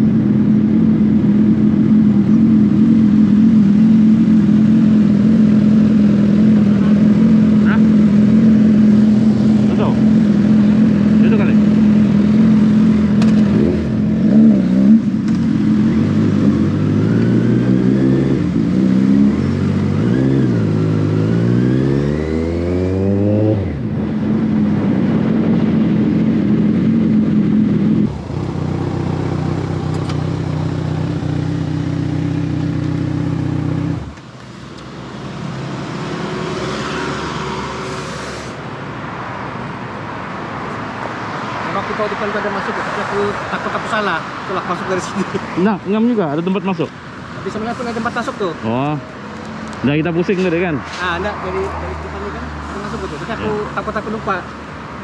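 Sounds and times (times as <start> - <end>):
motorcycle engine revving: 0.0 - 34.4.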